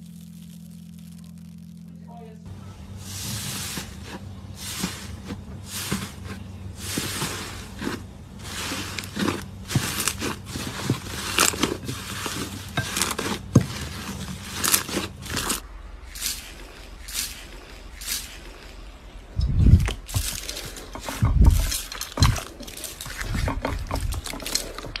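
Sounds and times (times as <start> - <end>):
slime squelching and popping: 0.0 - 1.9
foam beads crunching: 0.0 - 25.0.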